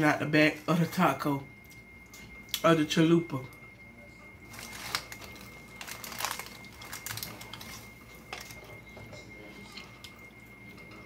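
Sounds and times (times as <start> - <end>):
crisp crunching of chewing: 4.5 - 8.6.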